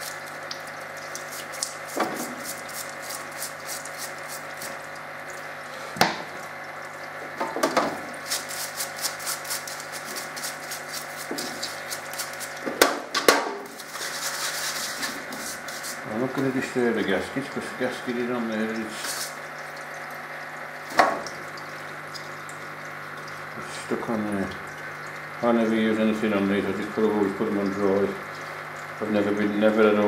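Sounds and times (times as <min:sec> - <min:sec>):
pump humming: 0:00.0 - 0:30.0
stream of fluid running: 0:00.0 - 0:30.0
wire brush scrubbing metal: 0:01.2 - 0:04.8, 0:08.2 - 0:12.6, 0:13.7 - 0:16.1, 0:19.0 - 0:19.4.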